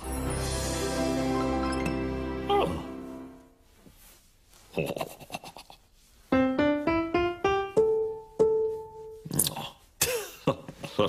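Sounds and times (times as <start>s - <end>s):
grand piano notes: 6.3s - 9.2s.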